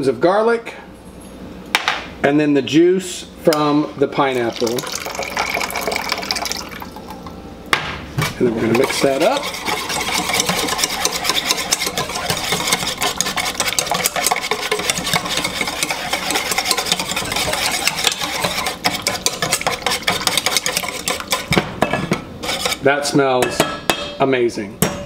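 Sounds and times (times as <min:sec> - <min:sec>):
sauce sloshing: 0:04.4 - 0:07.1, 0:08.4 - 0:21.6
whisk clattering in metal bowl: 0:08.3 - 0:24.2.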